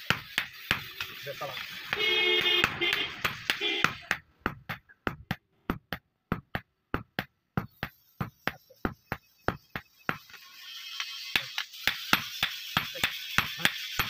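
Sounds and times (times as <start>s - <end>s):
hammer striking hot metal on anvil: 0.0s - 4.8s, 11.2s - 14.0s.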